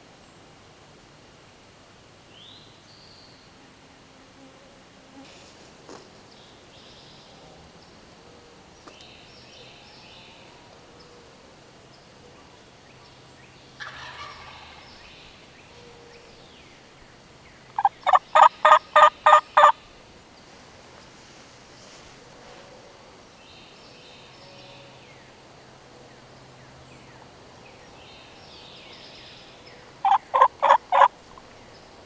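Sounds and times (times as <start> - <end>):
turkey gobbling: 13.8 - 14.9, 17.8 - 19.8, 30.0 - 31.1.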